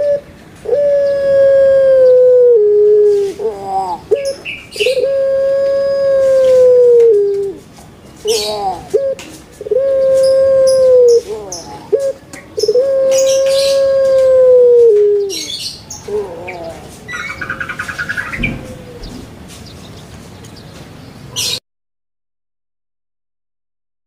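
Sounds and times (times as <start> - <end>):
dove cooing: 0.0 - 7.6, 8.2 - 19.5
small birds chirping: 3.0 - 21.6.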